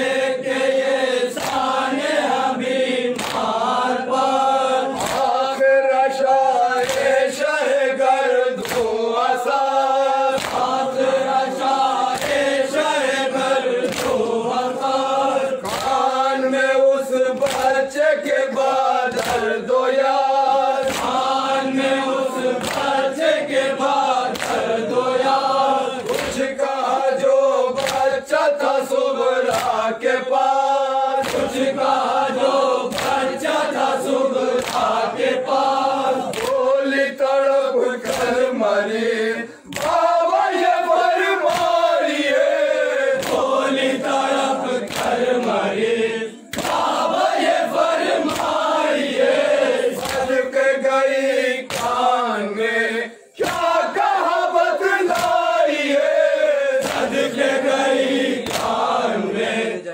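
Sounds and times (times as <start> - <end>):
men chanting a lament: 0.0 - 59.9
chest-beating slaps: 1.3 - 1.8, 3.1 - 3.6, 4.9 - 5.5, 6.8 - 7.2, 8.6 - 9.0, 10.3 - 10.8, 13.8 - 14.4, 17.4 - 17.8, 19.1 - 19.6, 20.8 - 21.4, 22.6 - 23.0, 24.3 - 24.7, 26.0 - 26.5, 27.8 - 28.2, 29.4 - 29.9, 31.2 - 31.7, 32.9 - 33.4, 34.6 - 35.0, 35.6 - 36.6, 38.0 - 38.5, 39.7 - 40.1, 41.4 - 42.5, 43.2 - 45.6, 46.4 - 47.6, 48.2 - 48.6, 50.0 - 50.4, 51.6 - 52.1, 53.4 - 53.8, 55.1 - 55.5, 56.8 - 57.3, 58.4 - 59.0.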